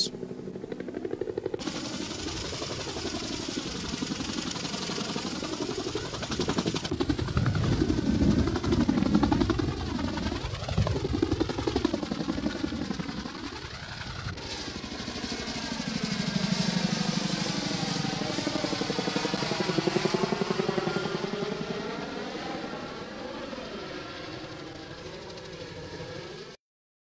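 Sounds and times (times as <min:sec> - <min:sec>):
helicopter rotors beating: 0:00.0 - 0:26.6.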